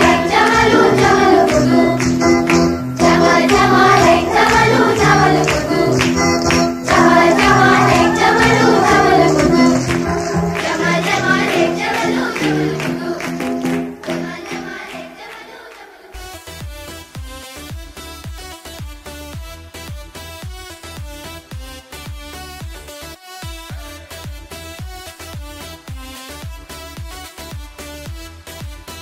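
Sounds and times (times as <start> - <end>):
steady bass and beat: 0.0 - 14.2, 16.2 - 29.0
choir singing: 0.0 - 16.2.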